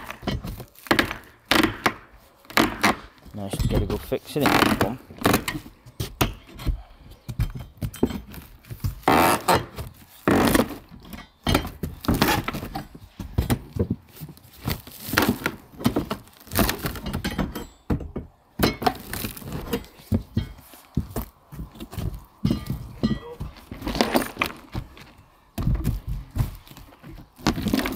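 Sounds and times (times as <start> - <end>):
pry bar scraping wood: 0.0 - 13.0.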